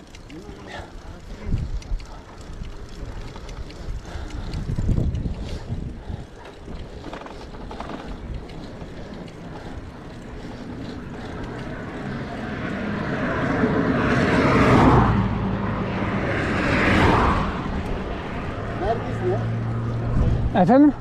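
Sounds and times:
vehicle passing by: 0.0 - 21.0.

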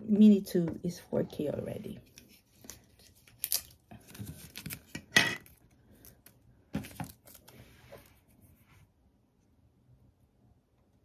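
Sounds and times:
plastic packaging crinkling: 2.0 - 7.6.

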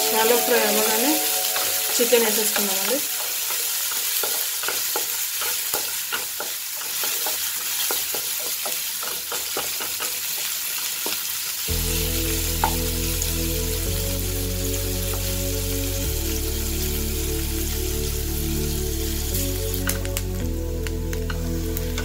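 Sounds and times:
background music: 0.0 - 3.9, 11.7 - 22.0
food sizzling in hot oil: 0.0 - 22.0.

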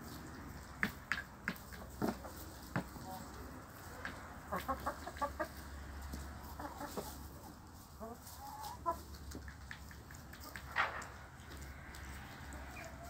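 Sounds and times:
chickens clucking: 0.0 - 13.0
chicken calling: 4.0 - 10.6, 11.4 - 13.0.

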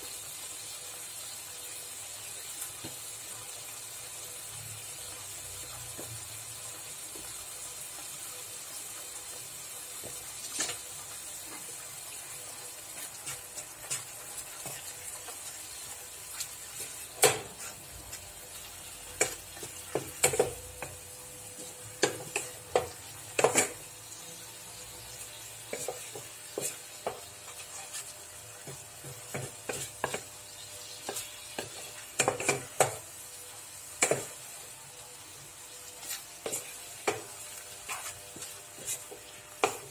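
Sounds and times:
chicken sizzling: 0.0 - 39.9
wooden spatula scraping pan: 25.6 - 30.3, 35.9 - 39.9.

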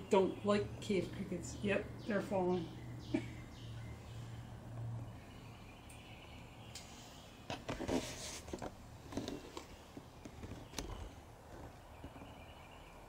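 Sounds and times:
scuffs and rustles of handling: 7.5 - 12.3.

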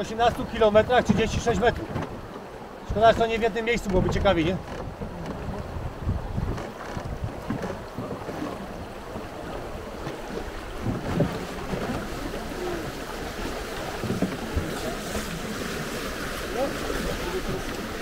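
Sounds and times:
river water flowing and splashing: 0.0 - 18.0
wind buffeting microphone: 0.0 - 18.0.

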